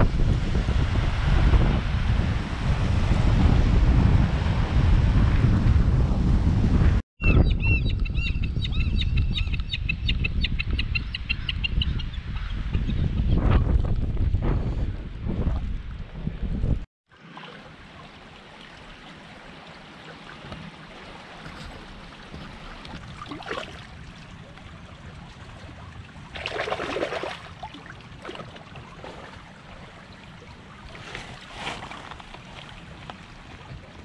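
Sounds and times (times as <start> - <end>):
creek water running over stones: 17.1 - 24.8
water splashes: 17.1 - 34.0.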